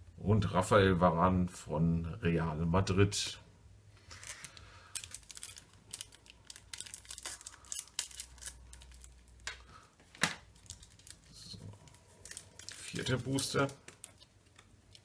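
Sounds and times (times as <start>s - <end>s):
foil wrapper tearing and crinkling: 4.1s - 9.5s, 10.5s - 14.3s.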